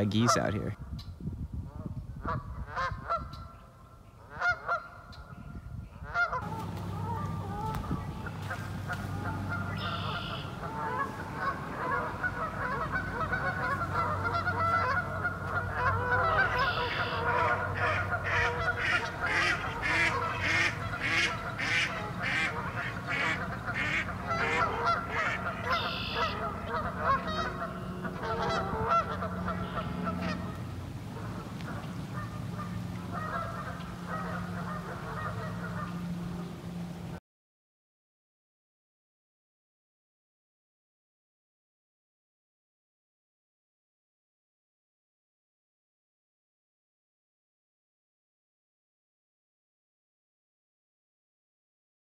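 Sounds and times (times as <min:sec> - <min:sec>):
geese honking: 0:00.0 - 0:00.7, 0:01.8 - 0:37.2.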